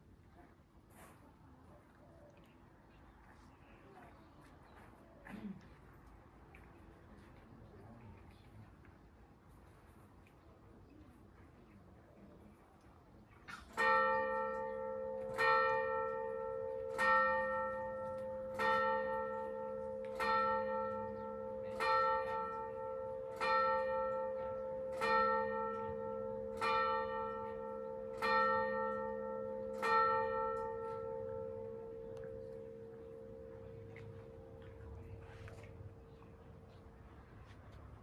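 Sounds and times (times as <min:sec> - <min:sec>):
church bell striking: 0:13.7 - 0:36.9.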